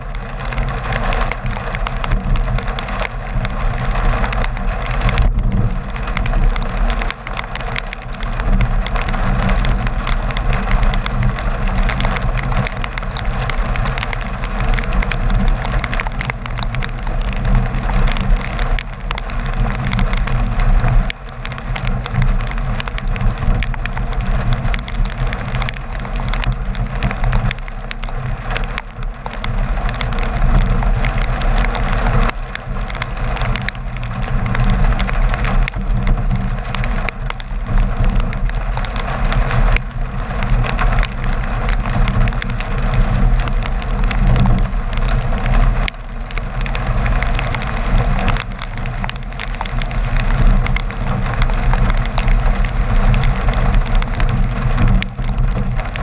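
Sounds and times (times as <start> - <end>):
raindrops ticking on camera: 0.0 - 56.0.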